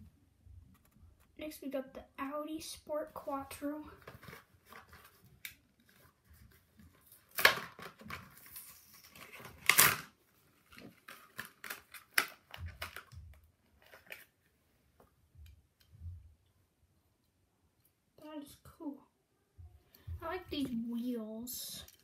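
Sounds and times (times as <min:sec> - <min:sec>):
blister pack crackling and tearing: 0:07.1 - 0:10.1, 0:10.8 - 0:13.2.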